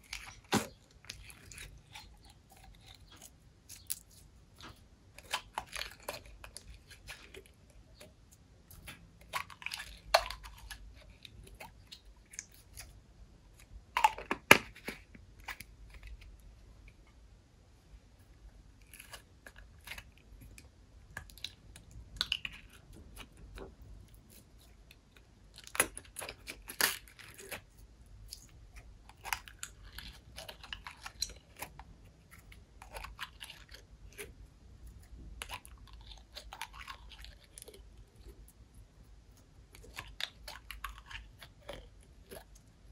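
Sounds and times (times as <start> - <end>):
slime squelching and crackling: 0.0 - 13.0, 21.1 - 42.9.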